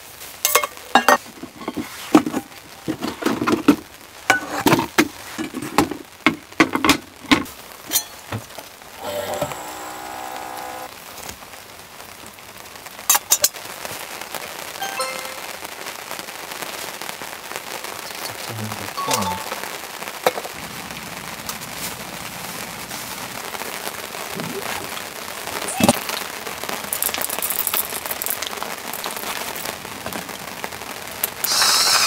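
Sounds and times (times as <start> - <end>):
rain falling: 0.0 - 32.0
background music: 14.8 - 15.6, 18.9 - 19.6.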